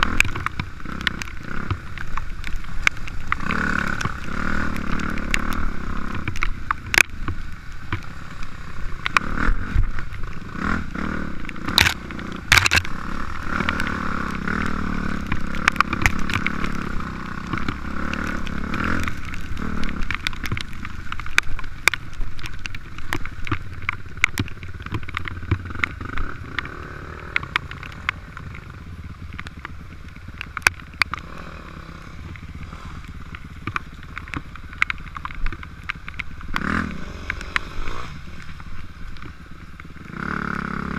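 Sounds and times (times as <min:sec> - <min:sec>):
dirt bike engine: 0:00.0 - 0:40.9
bike knocking over rocks: 0:09.0 - 0:40.3.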